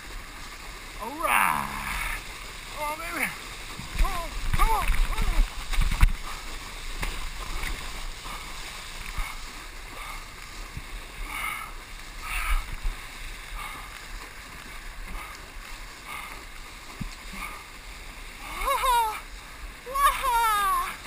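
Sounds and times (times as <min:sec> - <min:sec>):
ocean water lapping: 0:00.0 - 0:21.0
small water splash: 0:00.0 - 0:21.0
wind rumble on microphone: 0:03.7 - 0:17.5.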